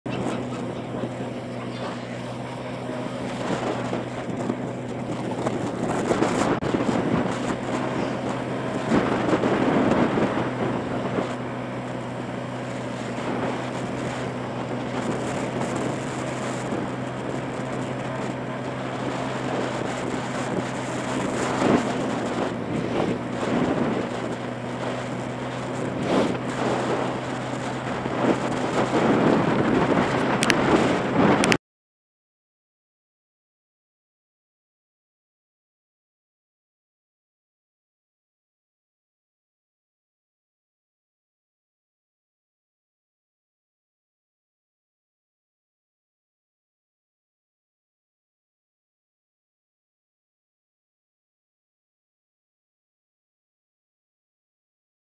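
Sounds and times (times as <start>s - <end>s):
motorbike engine cruising: 0.0s - 31.6s
wind buffeting microphone: 0.1s - 31.6s.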